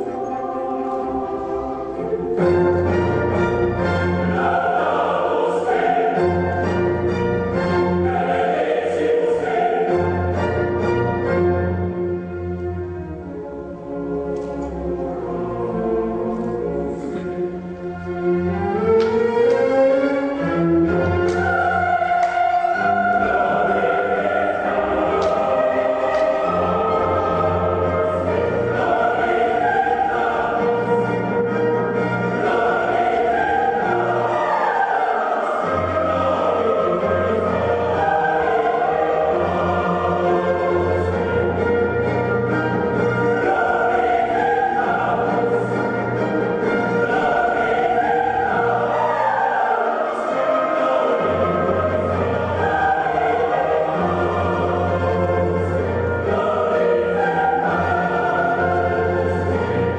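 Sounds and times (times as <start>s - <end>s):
choir singing held chords: 0.0s - 59.9s
orchestral accompaniment: 0.0s - 59.9s.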